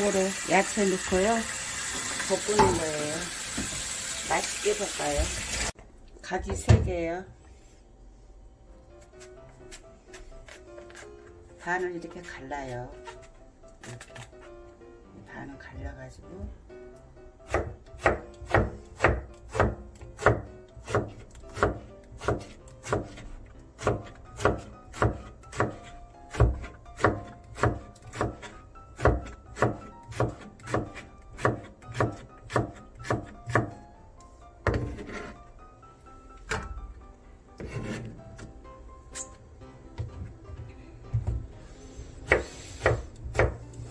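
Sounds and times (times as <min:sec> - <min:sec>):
knife chopping on cutting board: 0:17.5 - 0:33.8, 0:34.6 - 0:35.3, 0:42.2 - 0:43.7.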